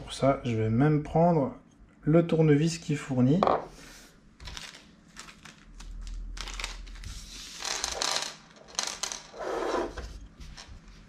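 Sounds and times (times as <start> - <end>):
plastic bag crinkling: 4.4 - 9.3.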